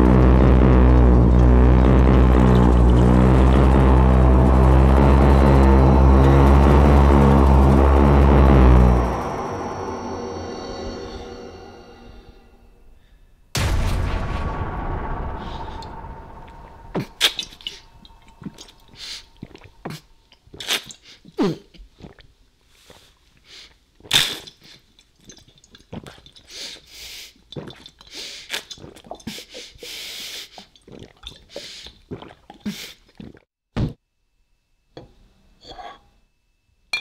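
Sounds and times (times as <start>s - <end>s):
man gulping liquid: 16.9s - 22.4s, 23.7s - 33.5s.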